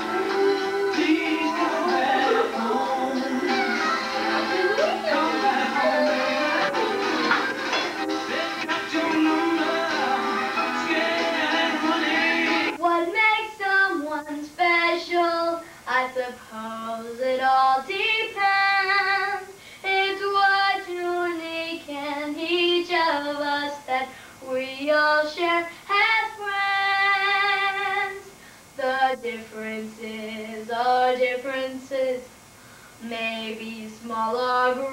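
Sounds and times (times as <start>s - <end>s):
girl singing solo: 0.0s - 7.3s.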